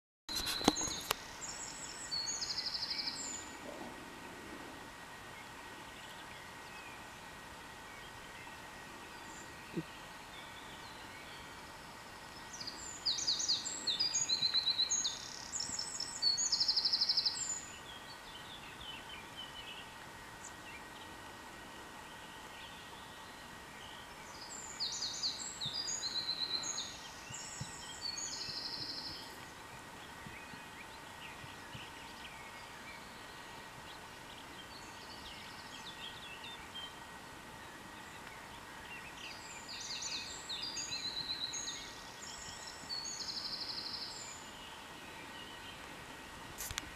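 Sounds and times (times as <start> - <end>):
songbird singing: 0.3 - 46.9
faint bird calls: 8.0 - 21.2.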